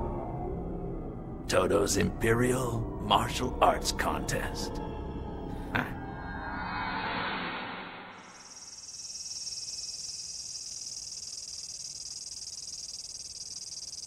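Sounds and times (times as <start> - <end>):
cicada buzzing: 8.2 - 14.0.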